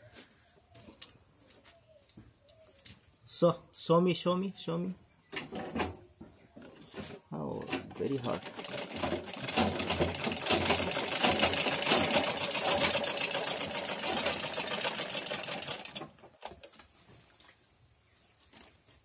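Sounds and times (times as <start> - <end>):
sewing machine clatter: 7.7 - 16.7.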